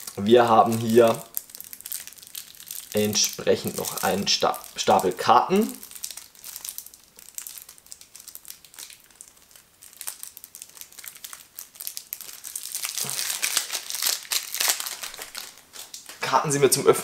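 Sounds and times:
shrink-wrap crinkling and tearing: 0.0s - 16.6s.

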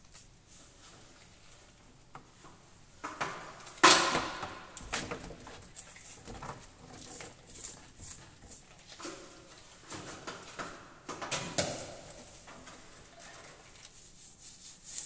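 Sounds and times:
paint roller scraping and patting: 4.6s - 10.8s, 11.5s - 15.0s.

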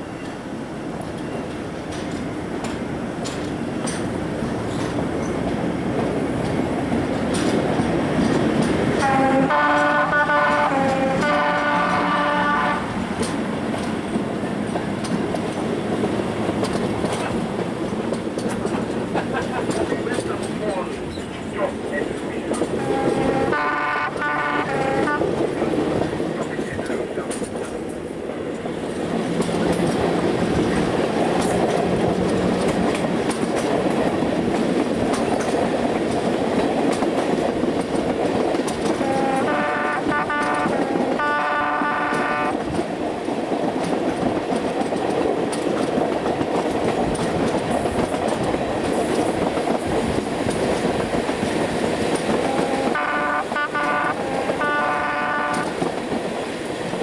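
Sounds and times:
electric train rumbling: 0.0s - 57.0s
wheels clicking over rail joints: 0.0s - 57.0s
two-tone train horn: 9.0s - 13.0s, 22.8s - 25.4s, 38.9s - 42.6s, 52.4s - 55.8s.

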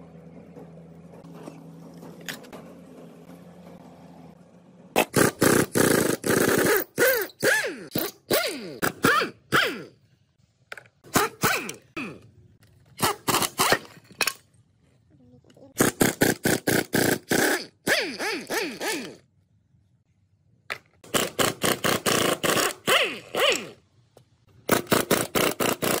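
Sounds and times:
impact wrench bursts: 5.0s - 10.0s, 11.0s - 12.2s, 13.0s - 14.4s, 15.8s - 19.3s, 20.7s - 23.8s, 24.6s - 26.0s.

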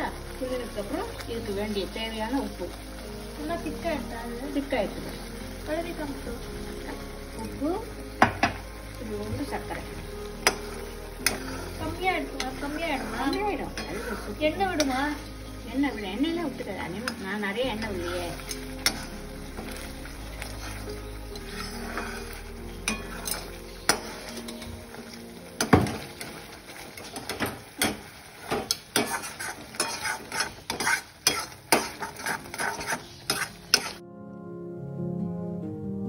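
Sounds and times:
paste sizzling in oil: 0.0s - 34.0s
ladle scraping and knocking pan: 10.4s - 15.3s, 17.8s - 24.8s, 25.6s - 34.0s.

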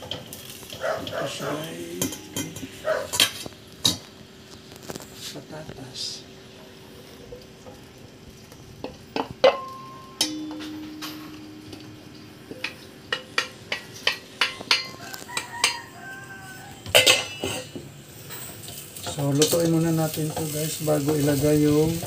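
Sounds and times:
sharp taps against metal: 8.8s - 15.8s
metal bowl ringing: 9.4s - 15.9s, 16.9s - 17.8s.

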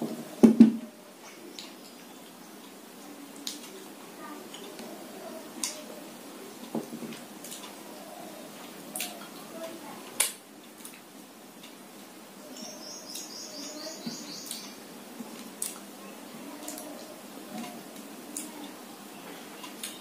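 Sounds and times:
small bird chirping: 12.4s - 14.8s.

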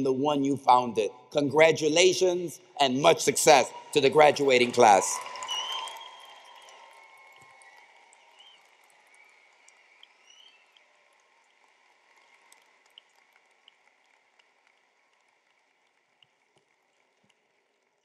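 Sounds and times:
faint applause from audience: 3.5s - 18.0s
whistles: 5.1s - 10.9s.

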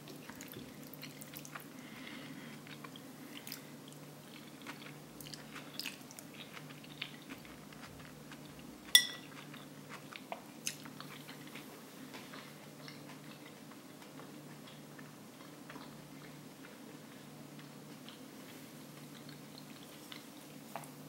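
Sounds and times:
low steady hum: 0.0s - 21.0s
chewing mouth sounds: 2.5s - 20.6s
cutlery clinking on plate: 9.0s - 9.3s.

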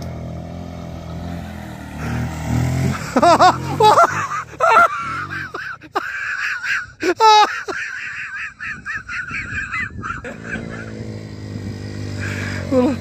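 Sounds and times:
motorcycle engine: 0.0s - 6.3s, 7.8s - 13.0s
loud laughing shout: 2.9s - 11.0s
people laughing: 2.9s - 11.0s.

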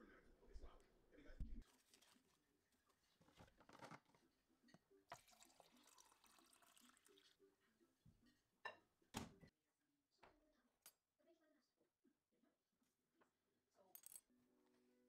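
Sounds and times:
water pouring into a mug: 1.6s - 3.5s, 5.0s - 7.5s.

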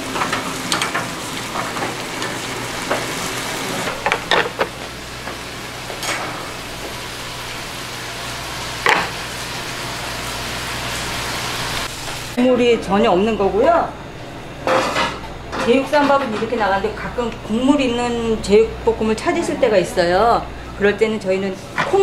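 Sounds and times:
stew boiling in pots: 0.0s - 13.9s.

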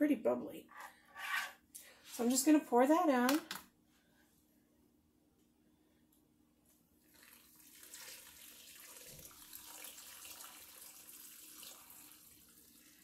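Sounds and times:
thick liquid pouring and splashing: 7.1s - 13.0s.

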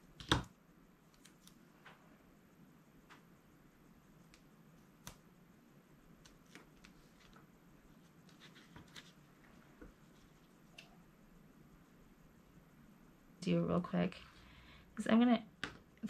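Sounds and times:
faint taps and rustles of handling card: 6.2s - 10.9s.

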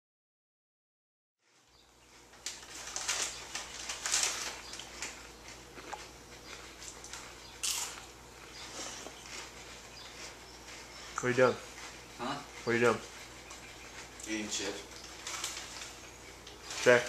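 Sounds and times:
foil snack bag crinkling: 2.3s - 6.1s, 6.9s - 8.1s, 14.9s - 17.0s.

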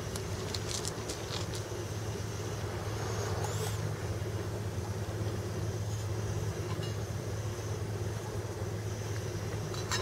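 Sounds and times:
low engine drone: 0.0s - 10.0s
steady hiss: 0.0s - 10.0s.

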